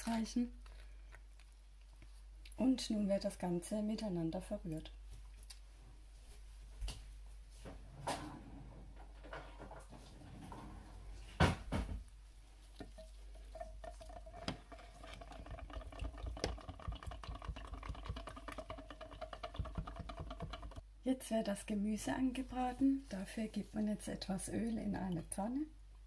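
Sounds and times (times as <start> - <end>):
whisk scraping glass jug: 12.8 - 20.8.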